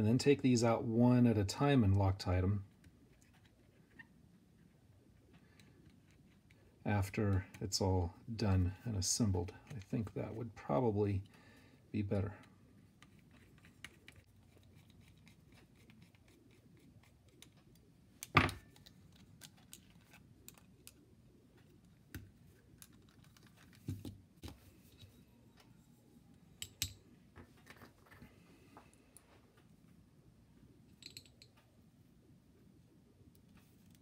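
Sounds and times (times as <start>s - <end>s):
metal parts clinking: 31.0s - 31.5s.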